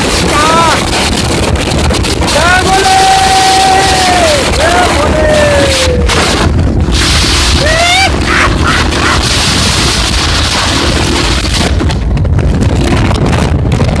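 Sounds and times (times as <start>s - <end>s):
wind buffeting microphone: 0.0s - 14.0s
person whooping: 2.8s - 6.1s, 7.6s - 9.2s.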